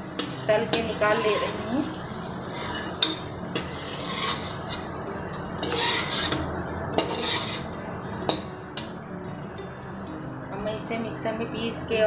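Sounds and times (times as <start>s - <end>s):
metal spoon scraping a pan: 0.1s - 9.0s.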